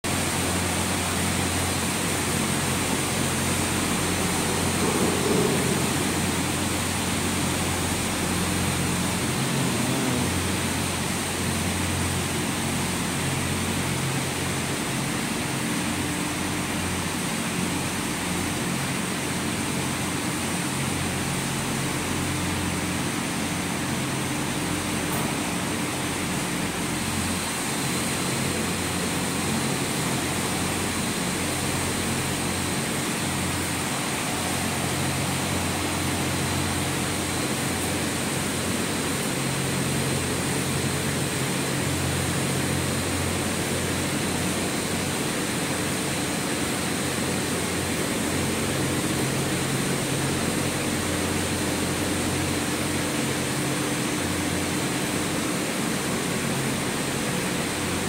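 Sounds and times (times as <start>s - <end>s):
gondola machinery hum and whir: 0.1s - 58.0s
low wavering drone: 0.2s - 13.6s.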